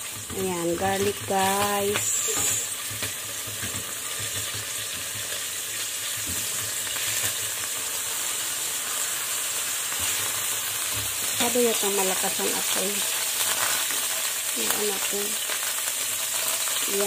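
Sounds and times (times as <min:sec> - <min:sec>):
spatula stirring in pan: 0:00.0 - 0:07.6
garlic sizzling in oil: 0:00.0 - 0:17.0.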